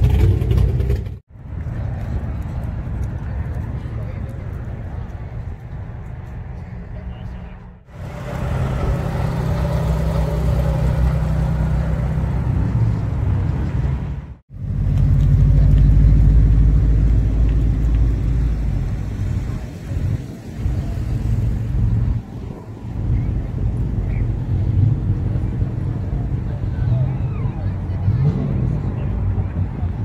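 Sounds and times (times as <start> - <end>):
deep car engine rumble: 0.0 - 30.0
car engine low hum: 7.8 - 30.0.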